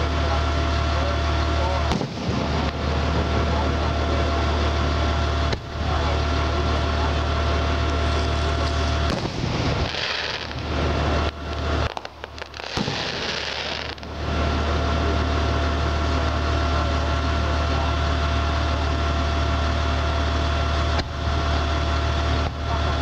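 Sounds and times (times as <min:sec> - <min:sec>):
engine idling hum: 0:00.0 - 0:23.0
fireworks cracking: 0:01.7 - 0:15.6
hissing crackle: 0:07.8 - 0:14.5.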